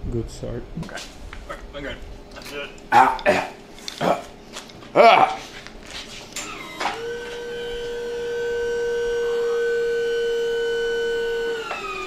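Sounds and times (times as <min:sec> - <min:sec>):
hydraulic pump whining: 0:06.2 - 0:12.0.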